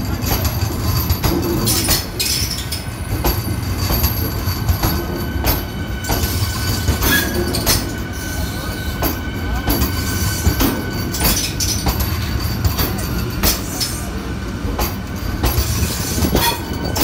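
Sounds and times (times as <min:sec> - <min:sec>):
low rumble of train wheels: 0:00.0 - 0:17.0
sharp wheel clacks: 0:14.7 - 0:17.0.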